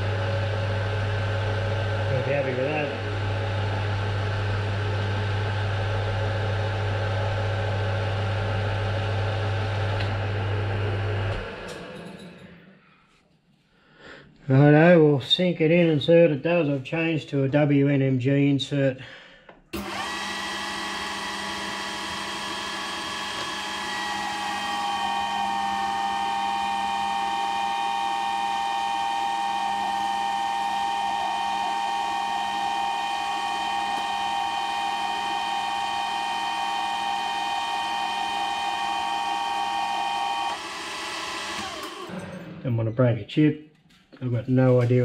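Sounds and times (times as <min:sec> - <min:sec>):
metal lathe whine: 0:00.0 - 0:12.5, 0:19.8 - 0:42.6
metal cutting noise: 0:01.5 - 0:07.5, 0:19.8 - 0:43.0.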